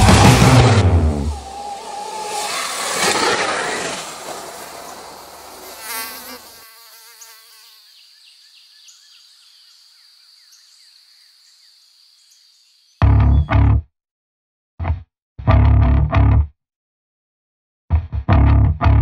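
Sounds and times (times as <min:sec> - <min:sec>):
electric dirt bike passing: 0:00.0 - 0:06.7
high insect buzz: 0:01.0 - 0:13.0
small bird chirps: 0:07.1 - 0:13.5.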